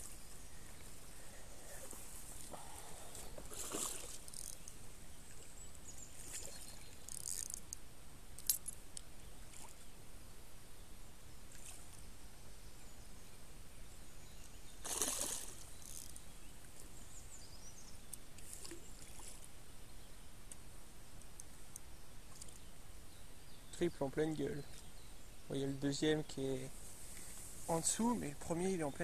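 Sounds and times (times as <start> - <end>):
fish splashing in water: 14.8 - 15.6.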